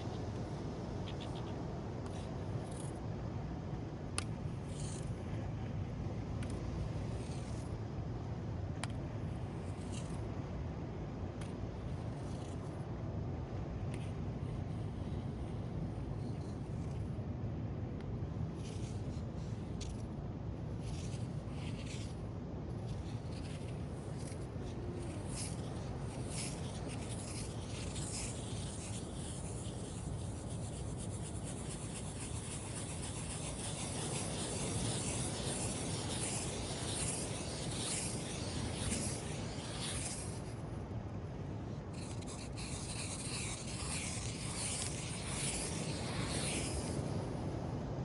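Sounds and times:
sand grains scratching: 0:00.0 - 0:03.1, 0:04.0 - 0:05.4, 0:06.4 - 0:08.0, 0:08.8 - 0:10.3, 0:11.3 - 0:17.2, 0:18.3 - 0:40.8, 0:41.6 - 0:47.9
small waves washing on beach: 0:31.8 - 0:40.6.

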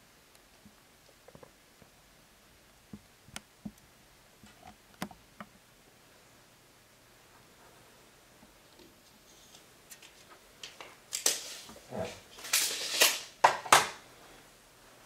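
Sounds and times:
handling rustling and scraping: 0:08.7 - 0:13.7.

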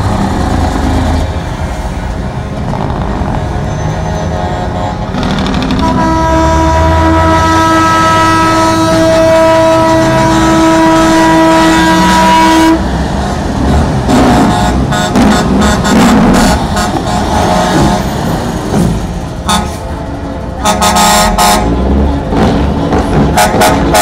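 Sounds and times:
diesel truck engines rumbling: 0:00.0 - 0:24.0
truck air horn blast: 0:03.9 - 0:12.8, 0:14.2 - 0:18.1, 0:19.4 - 0:20.0, 0:20.6 - 0:22.0, 0:23.3 - 0:24.0.

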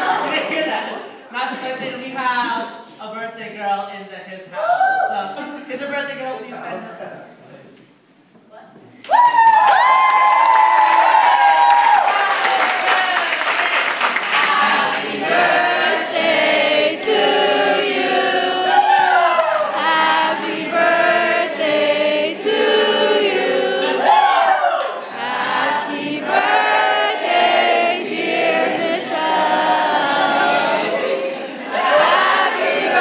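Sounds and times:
youth choir singing: 0:00.0 - 0:01.0, 0:14.2 - 0:33.0.

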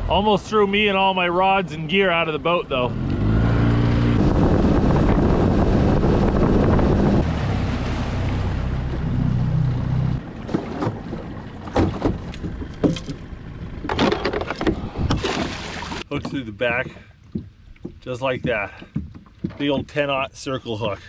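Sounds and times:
outboard motor running: 0:00.8 - 0:20.0
wind on microphone: 0:03.2 - 0:07.7
sharp knocks and clatters: 0:10.4 - 0:15.4, 0:16.2 - 0:20.1.

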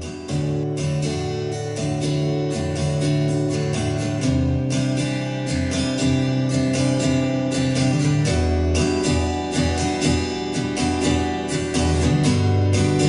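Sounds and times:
acoustic guitar strumming chords: 0:00.0 - 0:13.0.

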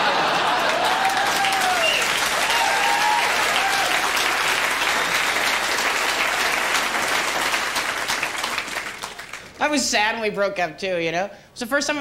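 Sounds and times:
audience laughing: 0:00.0 - 0:01.7
audience applauding: 0:00.0 - 0:09.6.

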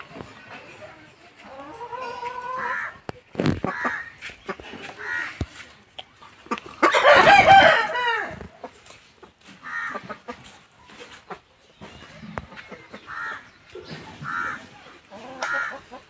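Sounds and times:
rooster crowing: 0:07.0 - 0:08.4.

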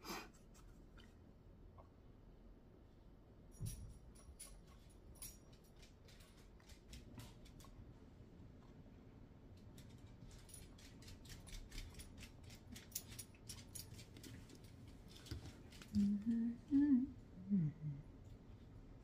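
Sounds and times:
low voiced sounds: 0:16.0 - 0:18.1.

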